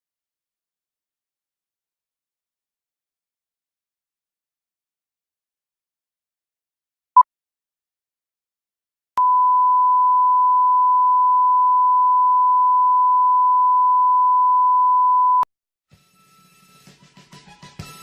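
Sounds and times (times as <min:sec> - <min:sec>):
short beep: 0:09.2 - 0:15.5.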